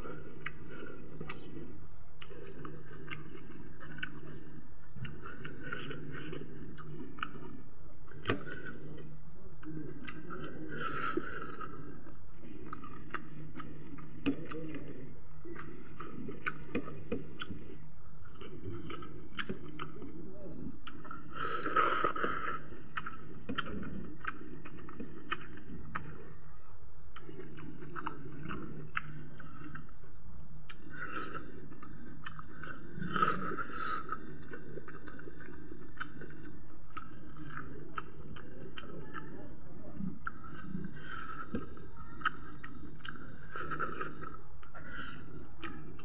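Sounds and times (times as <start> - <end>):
man chewing and lip smacking: 0.0 - 26.4, 27.1 - 46.0
low steady hum: 0.0 - 46.0.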